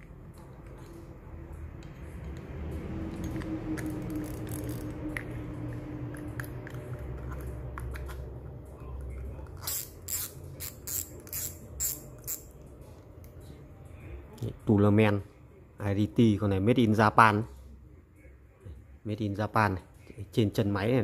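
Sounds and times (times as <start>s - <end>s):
fishing reel whirring: 3.8s - 5.2s, 9.6s - 12.5s.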